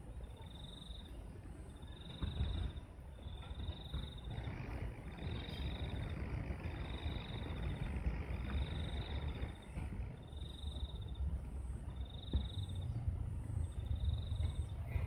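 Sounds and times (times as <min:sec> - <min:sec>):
low rumbling noise: 0:00.0 - 0:15.0.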